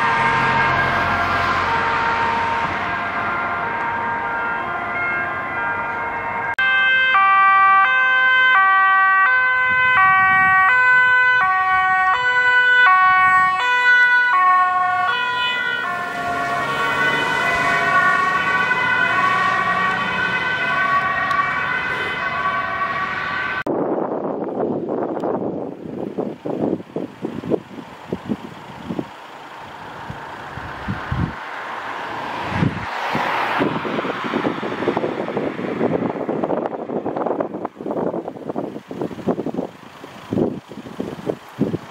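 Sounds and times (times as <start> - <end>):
ambulance two-tone siren: 0.0 - 23.7
wind noise rush: 9.5 - 10.8, 20.8 - 29.2, 29.8 - 41.9.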